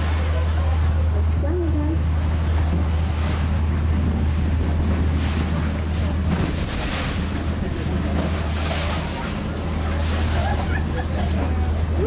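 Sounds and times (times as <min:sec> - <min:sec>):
boat engine drone: 0:00.0 - 0:12.0
wind gusting on microphone: 0:02.6 - 0:11.1.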